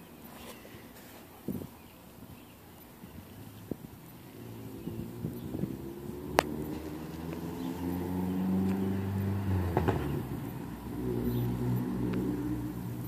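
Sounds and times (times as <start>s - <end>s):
race car engine droning: 3.3s - 13.0s.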